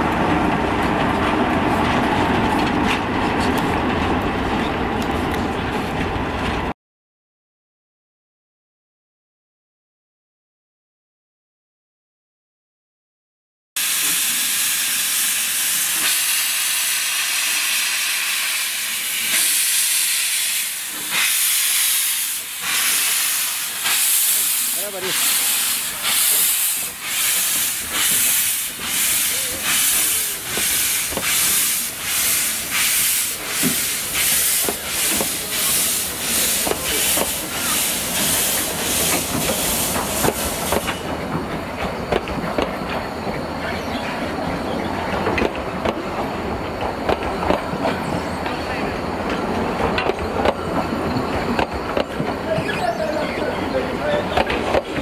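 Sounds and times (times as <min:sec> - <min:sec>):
steam hissing: 0:13.8 - 0:41.2
steam locomotive exhaust chuffs: 0:13.8 - 0:41.2.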